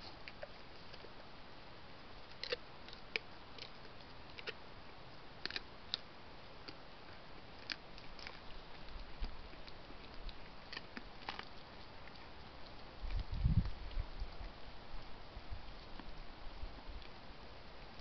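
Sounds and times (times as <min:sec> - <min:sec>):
deer crunching apples: 0:02.2 - 0:04.6, 0:05.4 - 0:06.8, 0:07.4 - 0:14.6.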